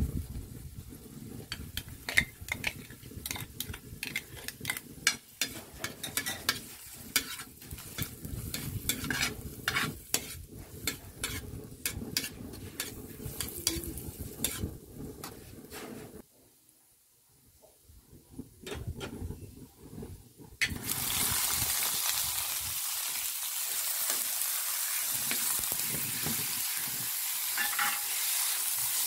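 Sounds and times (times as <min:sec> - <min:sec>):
light sizzle: 0:00.0 - 0:29.0
metal ladle scraping a wok: 0:01.5 - 0:16.2, 0:27.5 - 0:28.6.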